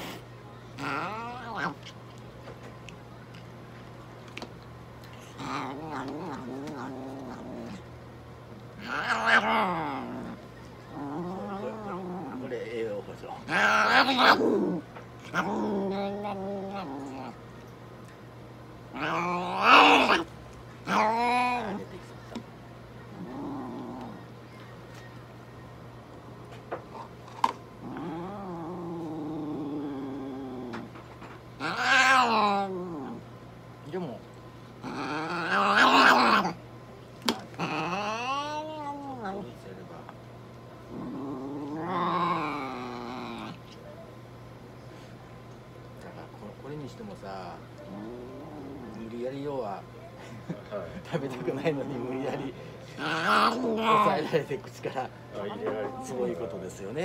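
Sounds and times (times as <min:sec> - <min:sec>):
cat yowling: 0:31.6 - 0:33.2, 0:37.6 - 0:39.3.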